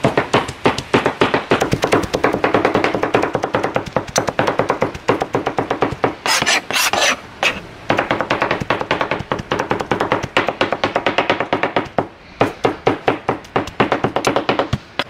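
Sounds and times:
cleavers chopping on cutting board: 0.0 - 15.0
blade scraping across board: 6.2 - 7.6.

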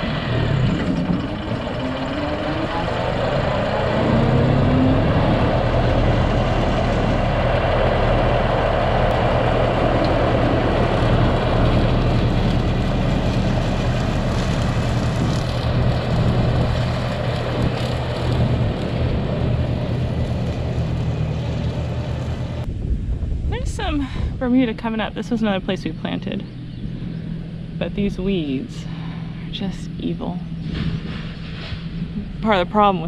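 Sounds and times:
rotary mower blade noise: 0.0 - 22.6
tractor engine drone: 0.0 - 33.0.

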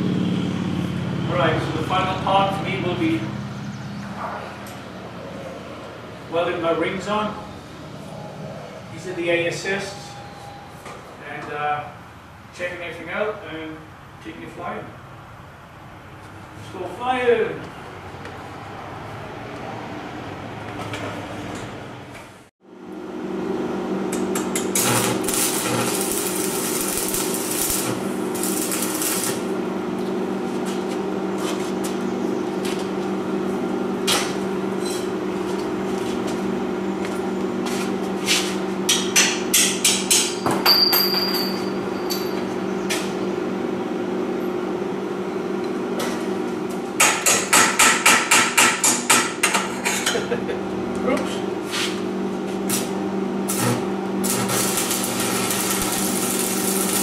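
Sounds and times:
steady hum: 22.7 - 40.3, 49.5 - 57.0
hammer striking steel tube: 38.9 - 41.4.

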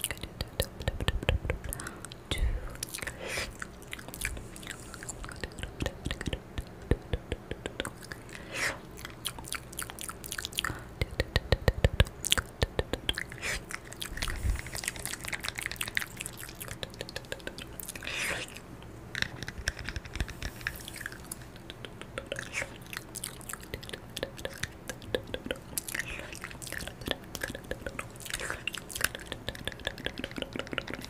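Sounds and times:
wet lip smacks: 2.8 - 18.5, 19.1 - 31.0
tongue clicks: 5.2 - 8.2, 9.0 - 18.0, 18.8 - 31.0
mock chewing: 7.6 - 31.0.

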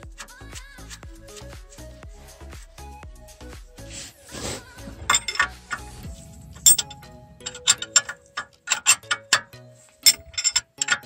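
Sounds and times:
background music: 0.0 - 11.0
socket ratchet clicking: 5.1 - 5.9, 6.7 - 11.0.

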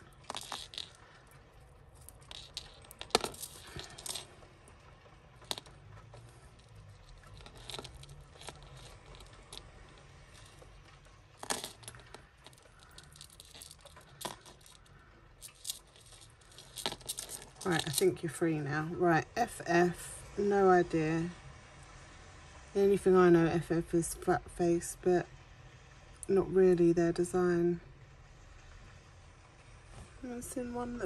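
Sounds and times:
metal chains clinking: 0.0 - 4.4, 5.4 - 10.8, 11.4 - 18.2.

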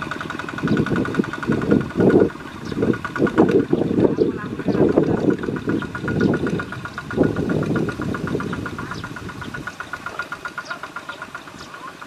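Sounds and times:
diesel engine knocking: 0.0 - 12.0.

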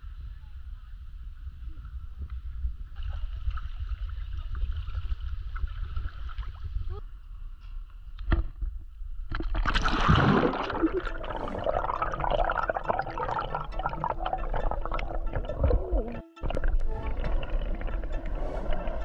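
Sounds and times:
underwater crackle and bubbling: 9.3 - 19.0
water sloshing and gurgling: 9.3 - 19.0.

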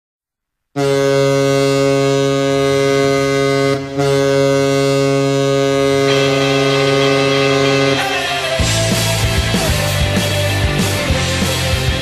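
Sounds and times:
arena goal horn: 0.8 - 8.8.

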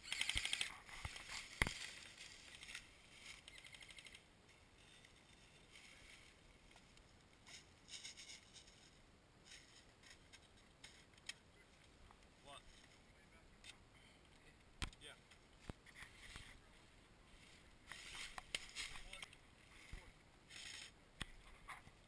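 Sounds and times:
airsoft gun firing a burst: 0.0 - 0.7
rustling of dry leaves: 0.0 - 11.9, 16.1 - 21.0.

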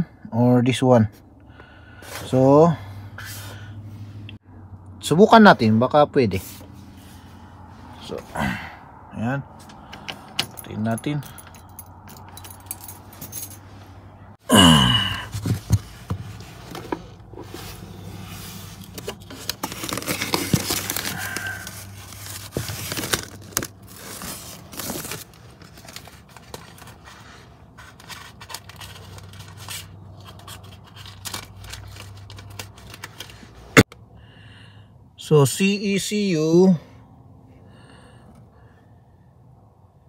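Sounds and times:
plastic rustling and crinkling: 15.3 - 33.9.

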